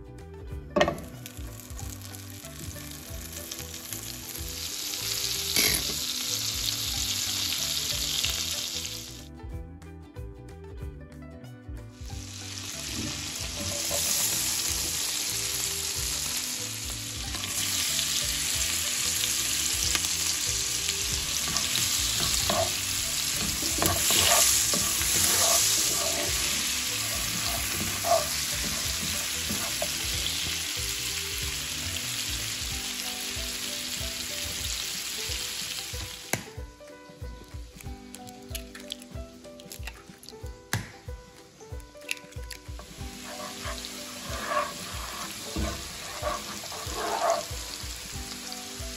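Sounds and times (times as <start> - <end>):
vegetables sizzling in a frying pan: 1.1 - 9.2, 12.0 - 36.5, 42.7 - 48.9
spatula stirring a pan: 12.6 - 15.0, 17.3 - 30.7, 42.8 - 48.3.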